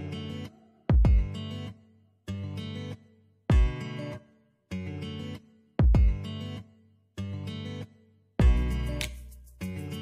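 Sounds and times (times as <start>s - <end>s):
strummed guitar chords: 0.0s - 1.7s, 2.3s - 9.1s
deep drum beat: 8.4s - 8.7s.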